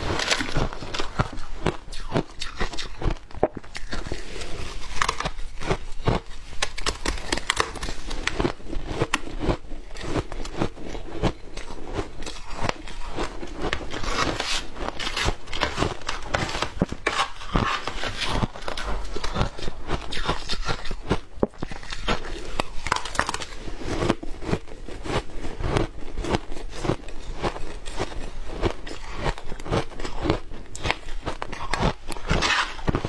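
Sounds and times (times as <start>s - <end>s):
ice crunching and chewing: 0.0s - 33.0s
metal spoon scraping plastic tub: 13.8s - 19.2s, 32.2s - 33.0s.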